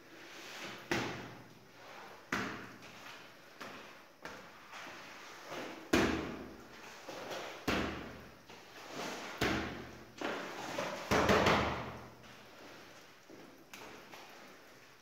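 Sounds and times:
squeegee pushing water on tiles: 0.1 - 1.1, 1.7 - 6.0, 8.5 - 11.1.

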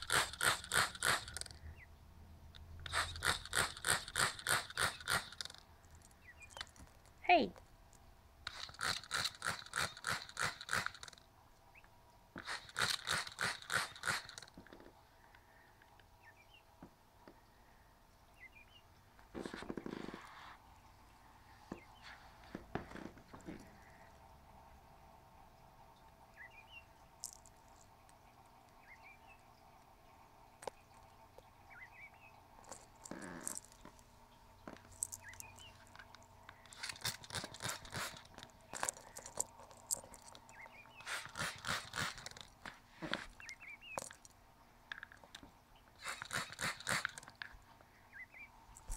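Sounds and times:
trigger spray bottle squirting: 0.0 - 1.6, 2.8 - 5.6, 8.4 - 11.2, 12.4 - 14.6, 36.6 - 42.8, 46.0 - 47.4.

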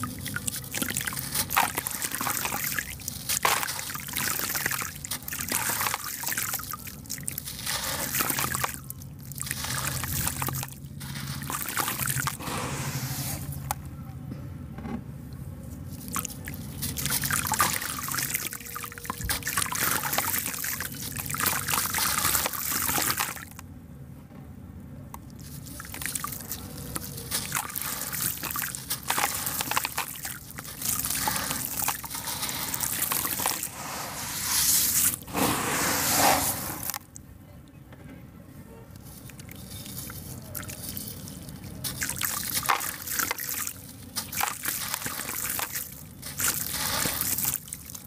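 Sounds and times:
water sloshing and trickling: 0.0 - 13.9, 15.7 - 23.6, 25.2 - 37.2, 38.9 - 48.0
concrete block crunching: 25.8 - 37.1.

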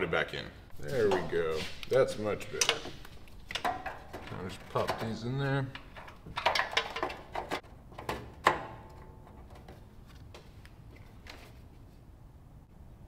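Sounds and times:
small clicks and knocks on sheet metal: 2.6 - 5.2, 5.8 - 9.8.

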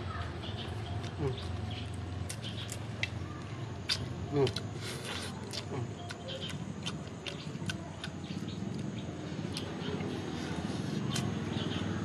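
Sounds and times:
chewing and lip smacking: 0.8 - 11.6
wet mouth clicks: 3.9 - 8.3.

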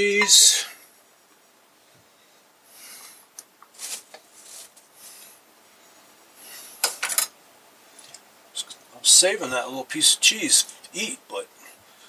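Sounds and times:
plastic packaging crinkling: 3.7 - 4.9.

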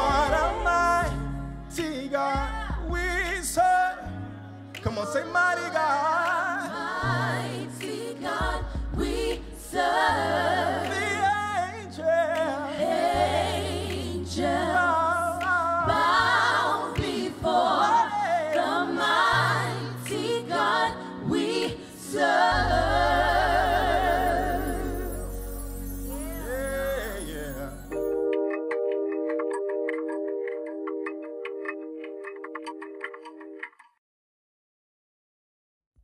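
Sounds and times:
low bass notes: 0.0 - 4.7, 8.4 - 12.4
man singing lead vocal: 0.0 - 7.2, 8.4 - 13.1, 14.1 - 16.3, 16.9 - 19.5, 26.1 - 28.0
backing choir singing: 4.8 - 28.0.

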